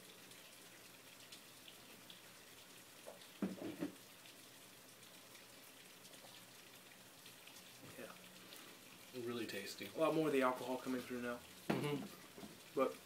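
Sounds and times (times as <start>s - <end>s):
room hiss: 0.0s - 13.0s
small liquid ticks: 0.0s - 13.0s
gulping beer: 11.7s - 13.0s.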